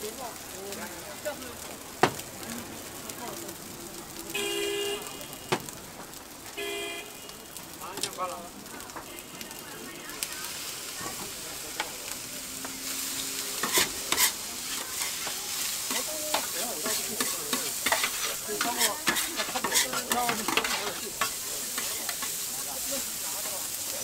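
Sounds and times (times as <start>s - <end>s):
rice sizzling on a griddle: 0.0s - 24.0s
metal spatulas scraping and clacking: 13.2s - 22.4s.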